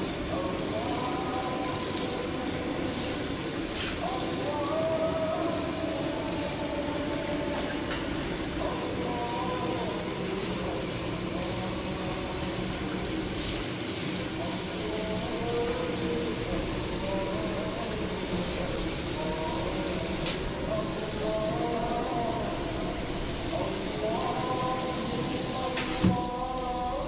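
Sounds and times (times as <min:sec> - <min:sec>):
faint singing: 0:00.0 - 0:27.0
oil sizzling and bubbling: 0:00.0 - 0:27.0.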